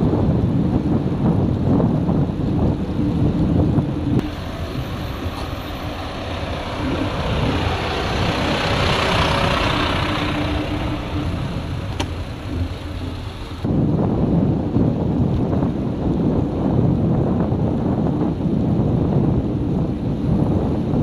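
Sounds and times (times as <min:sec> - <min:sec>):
wind on microphone: 0:00.0 - 0:21.0
bus diesel engine idling: 0:04.2 - 0:13.7.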